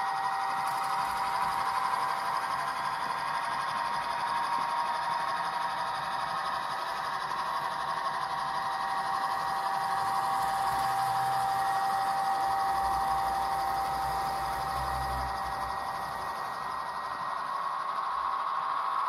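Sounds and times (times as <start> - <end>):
model train wheels whirring: 0.0 - 19.0
high whine: 5.8 - 19.0.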